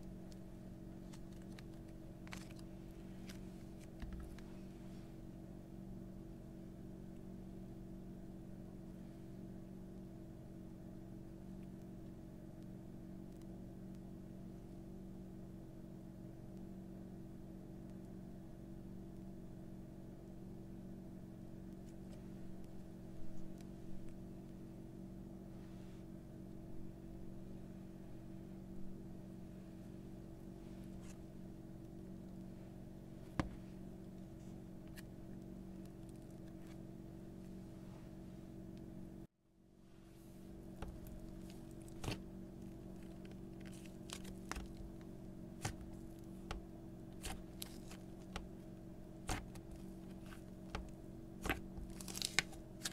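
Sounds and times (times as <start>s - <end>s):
steady mechanical hum: 0.0s - 52.9s
squishy slime stretching: 1.0s - 4.5s, 40.8s - 48.5s, 49.2s - 52.9s.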